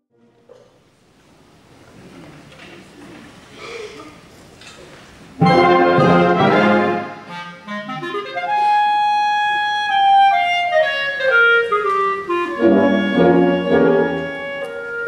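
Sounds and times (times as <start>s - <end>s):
accompanying chords: 5.4s - 15.0s
clarinet playing: 5.4s - 15.0s.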